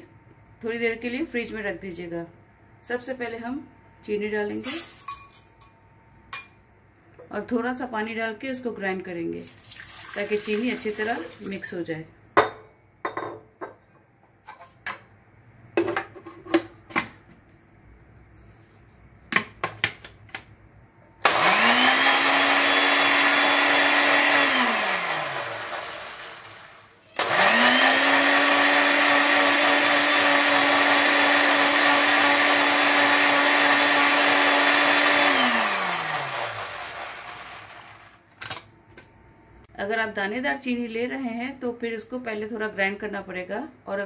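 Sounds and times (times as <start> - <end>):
blender motor grinding: 21.2 - 38.2.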